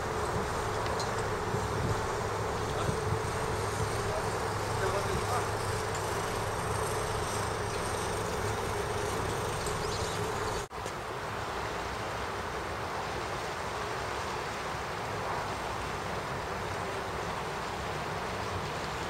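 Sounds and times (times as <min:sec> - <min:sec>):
buzzing hum: 0:00.0 - 0:10.7
engine drone: 0:00.0 - 0:10.7.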